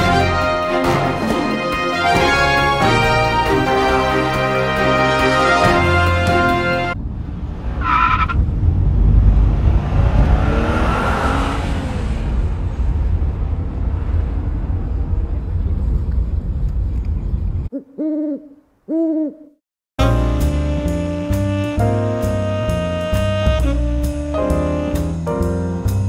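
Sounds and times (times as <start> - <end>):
road rumble inside a van: 7.0 - 10.5, 11.4 - 17.7.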